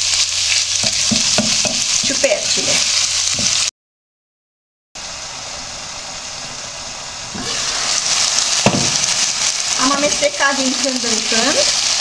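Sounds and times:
chicken and onion sizzling in oil: 0.0 - 3.7, 5.0 - 12.0
knock: 8.6 - 9.0.

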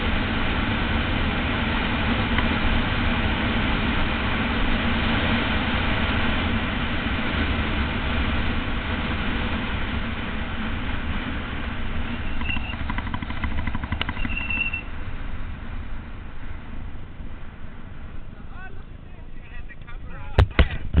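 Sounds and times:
bicycle tyre rumble on tarmac: 0.0 - 21.0
wind rushing over microphone: 0.0 - 21.0
short high squeals: 12.0 - 12.9, 14.0 - 15.0
fast ticks: 12.2 - 14.8.

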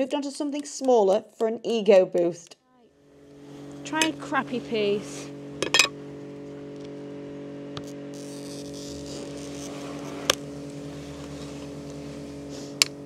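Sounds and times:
low buzzing hum: 2.9 - 13.0
glass scoring scratch: 8.1 - 11.7.

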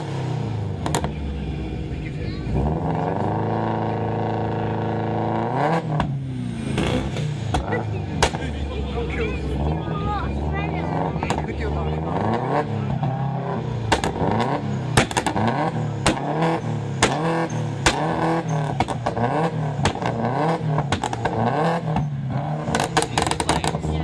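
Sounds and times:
car engine revving: 0.0 - 24.0
exhaust pops: 0.8 - 1.3, 5.9 - 8.7, 11.2 - 11.6, 13.8 - 24.0
exhaust backfire bangs: 5.8 - 8.8, 10.4 - 24.0.

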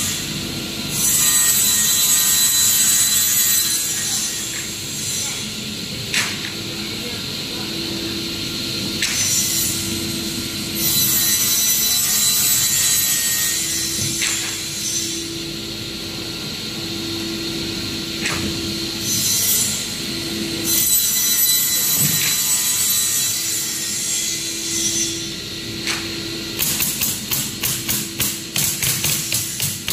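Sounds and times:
circular saw blade whine: 8.7 - 26.6.

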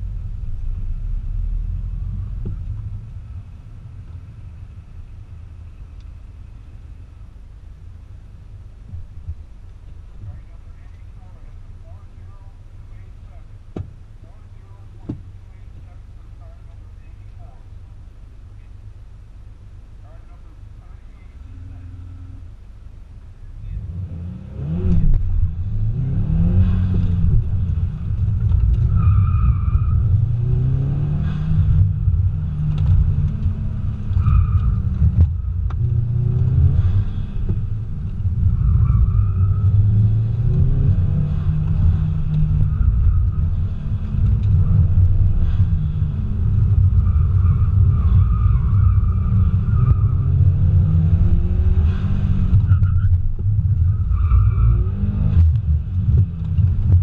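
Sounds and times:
car engine revving: 23.5 - 57.0.

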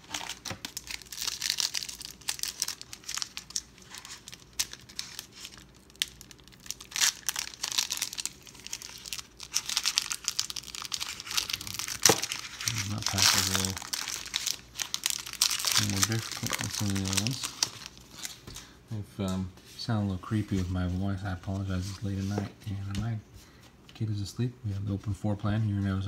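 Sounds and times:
foil wrapper tearing and crinkling: 0.0 - 18.5.

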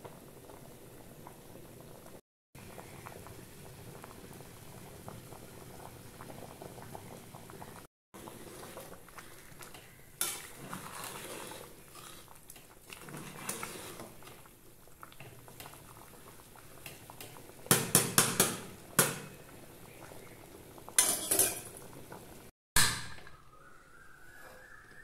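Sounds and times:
rice bubbling at the boil: 0.0 - 22.5
ladle stirring in pot: 8.2 - 18.5.

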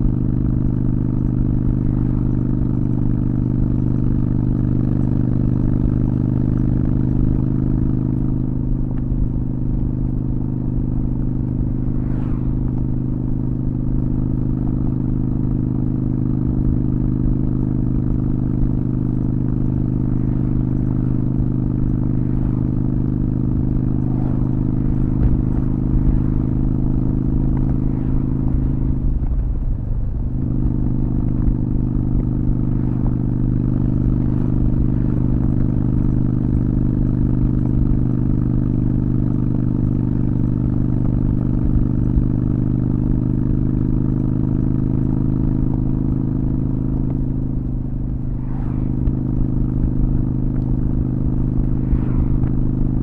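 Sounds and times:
motorcycle engine running: 0.0 - 53.0.

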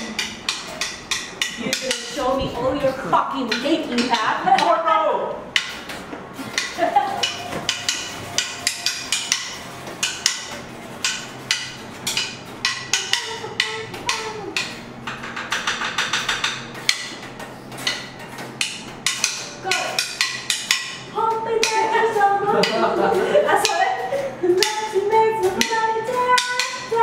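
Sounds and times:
wooden drumsticks clicking: 0.0 - 2.5, 5.5 - 21.9, 24.6 - 27.0
drumstick roll: 5.5 - 27.0.

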